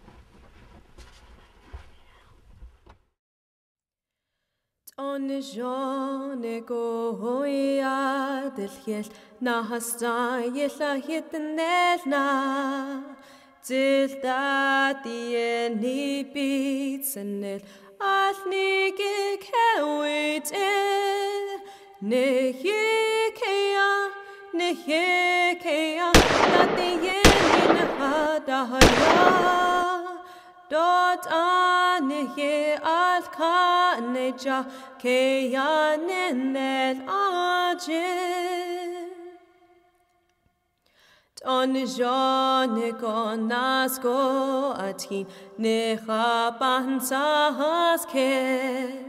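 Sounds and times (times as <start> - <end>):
person singing unaccompanied: 13.7 - 39.1
loud sharp bangs: 26.2 - 30.0.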